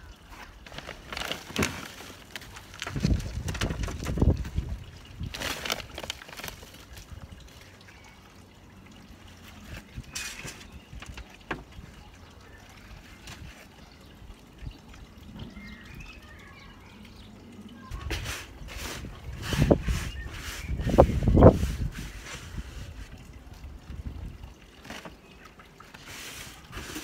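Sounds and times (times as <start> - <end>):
soil rustling and crumbling: 0.3 - 7.6, 18.0 - 23.2, 24.7 - 27.0
scraping in pots: 9.4 - 11.2, 17.9 - 23.2, 24.8 - 27.0.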